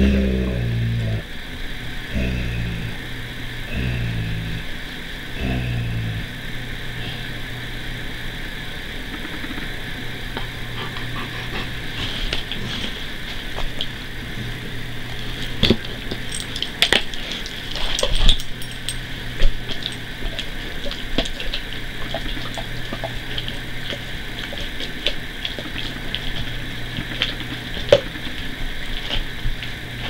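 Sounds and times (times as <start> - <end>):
low hum: 0.0 - 30.0
dog gnawing on chew: 10.4 - 30.0.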